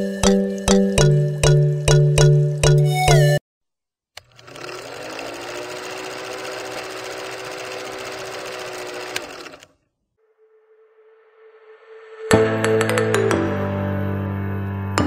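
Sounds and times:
film projector clatter: 0:04.2 - 0:09.7.

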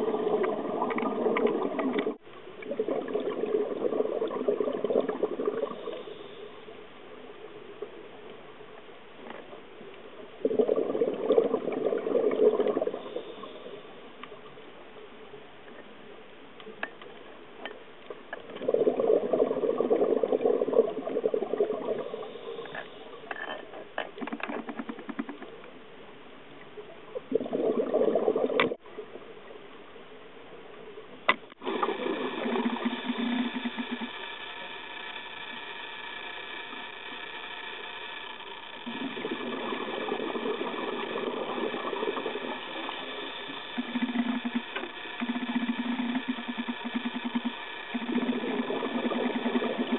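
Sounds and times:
diver's exhaled bubbles rushing: 0:00.0 - 0:06.0, 0:10.4 - 0:13.4, 0:18.6 - 0:22.4, 0:27.2 - 0:28.8, 0:31.6 - 0:34.1, 0:38.8 - 0:49.9
faint clicks: 0:14.2 - 0:14.5
steady hum: 0:31.3 - 0:49.9.

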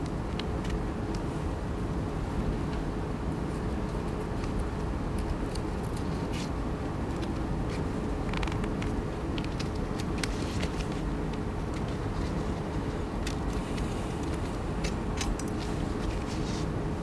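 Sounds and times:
steady low hum: 0:00.0 - 0:17.0
scissors snipping paper: 0:03.9 - 0:11.0, 0:13.2 - 0:16.4
paper being folded: 0:07.2 - 0:16.7.

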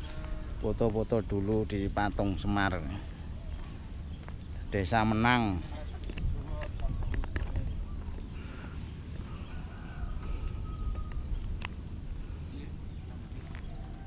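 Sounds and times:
distant background sounds: 0:00.0 - 0:14.0.

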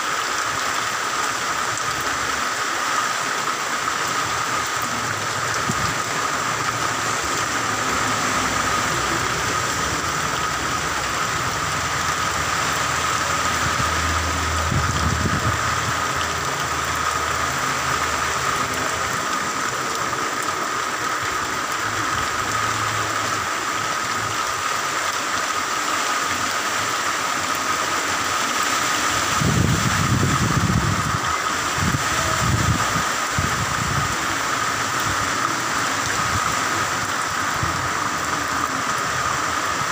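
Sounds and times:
heavy rain hiss: 0:00.0 - 0:39.9
rumbling wind gusts: 0:04.3 - 0:19.9, 0:28.2 - 0:39.9.

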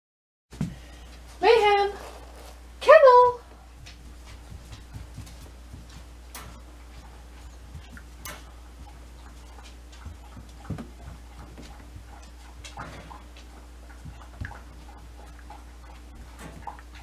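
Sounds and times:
puppy claws clicking on floor: 0:03.8 - 0:17.0.

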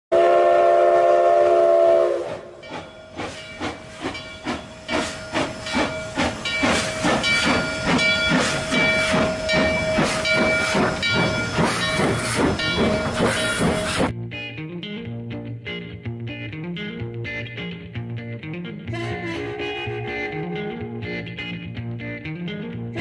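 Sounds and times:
steam locomotive chime whistle: 0:00.1 - 0:14.1
steam locomotive exhaust chuffing: 0:00.1 - 0:14.1
hissing steam: 0:02.0 - 0:14.1.

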